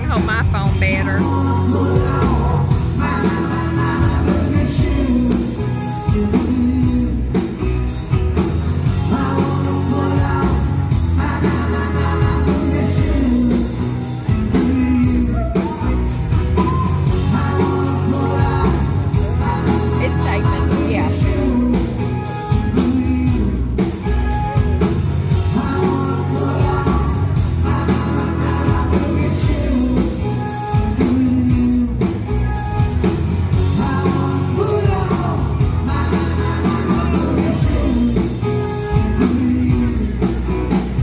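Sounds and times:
guitar: 0.0 - 41.0
keyboard: 0.0 - 41.0
steady drum beat: 0.0 - 41.0
person singing: 16.6 - 23.9, 25.3 - 32.1.

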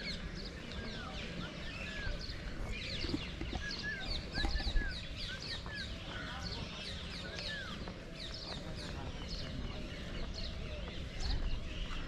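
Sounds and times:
whistled bird calls: 0.0 - 6.0
small birds chirping: 0.0 - 12.0.

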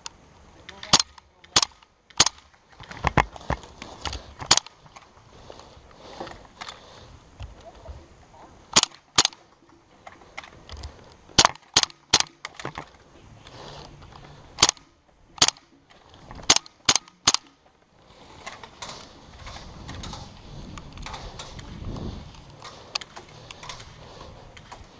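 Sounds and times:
airsoft gun shots: 0.9 - 2.5, 8.7 - 9.4, 11.4 - 12.6, 14.6 - 15.7, 16.4 - 17.6.

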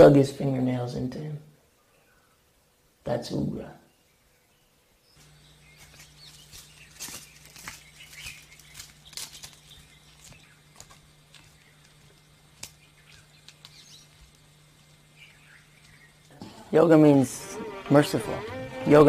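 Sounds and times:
steady low hum: 4.4 - 19.0
footsteps crunching on dry leaves: 5.2 - 16.4.

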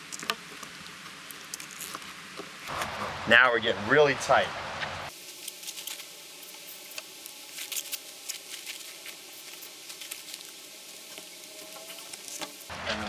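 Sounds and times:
rope handling crackles: 0.0 - 2.9, 5.2 - 12.7.

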